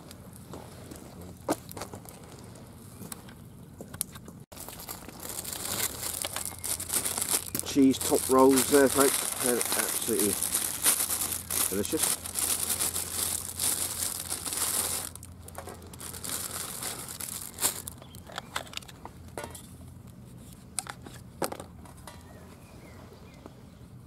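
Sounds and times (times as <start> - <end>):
packaging crinkling and rustling: 4.5 - 19.4.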